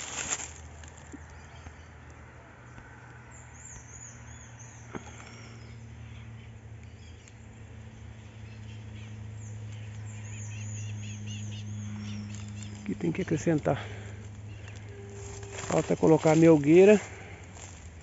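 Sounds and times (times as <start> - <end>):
bees buzzing: 8.4 - 18.0.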